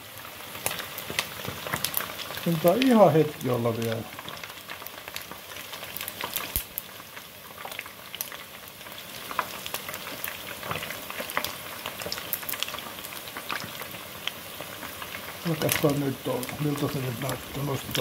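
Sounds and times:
hot oil sizzling: 0:00.0 - 0:18.0
crackling pops: 0:00.6 - 0:18.0.

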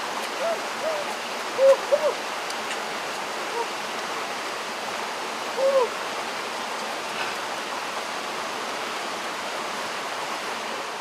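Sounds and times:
water rushing over rocks: 0:00.0 - 0:11.0.

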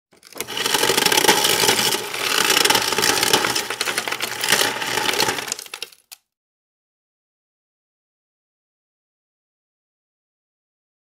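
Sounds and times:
ice dispenser crushing ice: 0:00.1 - 0:06.2.

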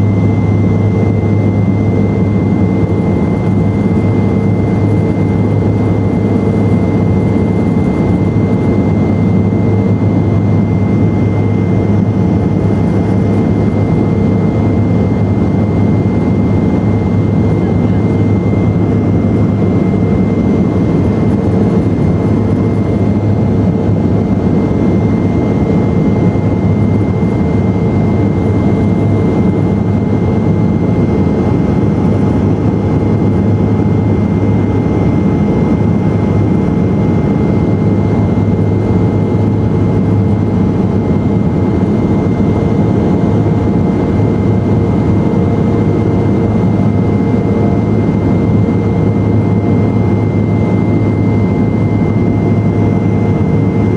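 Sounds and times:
turboprop engines droning: 0:00.0 - 0:53.9.

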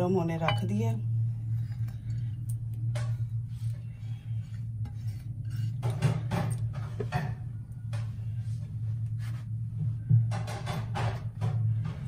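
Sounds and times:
steady low hum: 0:00.0 - 0:12.0
glass bowl clinking: 0:00.4 - 0:00.9.

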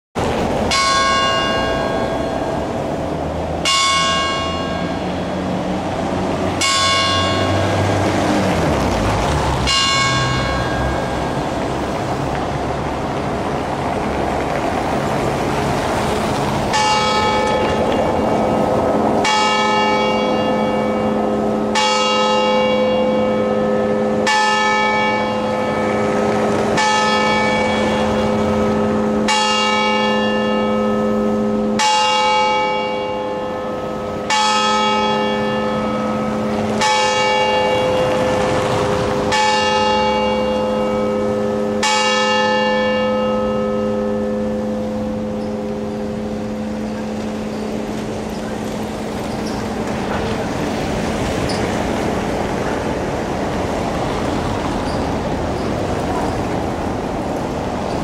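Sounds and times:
clock bell striking: 0:00.7 - 0:02.8, 0:03.6 - 0:05.4, 0:06.6 - 0:08.0, 0:09.6 - 0:11.8, 0:16.7 - 0:18.6, 0:19.2 - 0:38.2, 0:39.3 - 0:48.4.

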